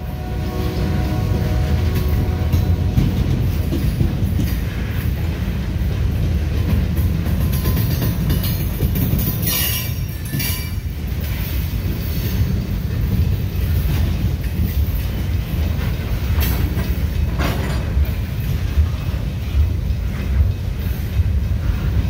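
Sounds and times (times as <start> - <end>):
high-pitched train noise bursts: 0.0 - 5.6
train wheels rumbling on rails: 0.0 - 22.0.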